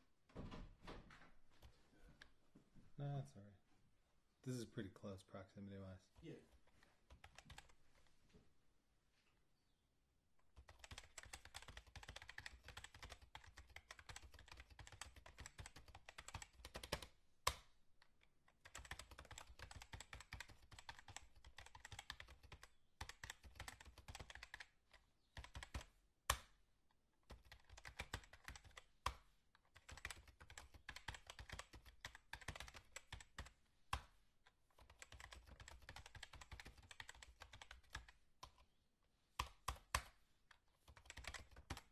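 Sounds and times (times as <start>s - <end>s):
typing on computer keyboard: 7.1s - 7.8s, 10.6s - 17.7s, 18.5s - 26.5s, 27.2s - 34.1s, 34.7s - 38.7s, 39.4s - 41.9s.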